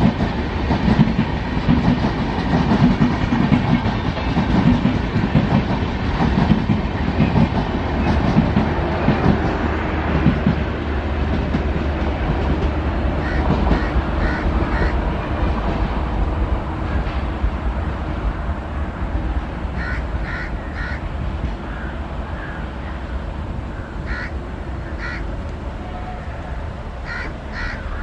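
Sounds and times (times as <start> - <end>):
crows cawing: 13.2 - 15.0, 19.8 - 21.0, 21.6 - 23.0, 23.7 - 25.3, 27.0 - 28.0.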